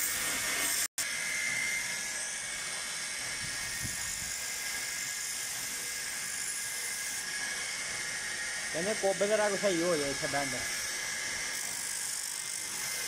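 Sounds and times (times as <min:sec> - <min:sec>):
belt sander whining: 0:06.8 - 0:11.9.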